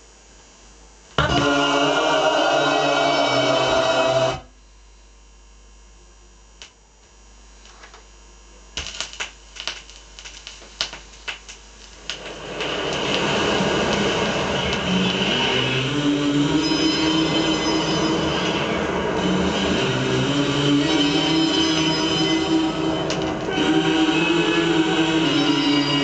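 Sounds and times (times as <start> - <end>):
vinyl record music: 1.2 - 4.5, 9.1 - 26.0.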